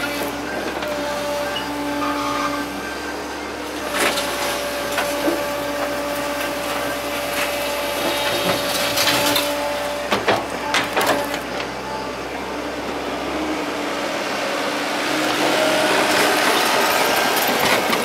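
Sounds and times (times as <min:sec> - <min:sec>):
excavator engine and hydraulics: 0:00.0 - 0:18.0
sharp knocks and clanks: 0:10.1 - 0:11.4.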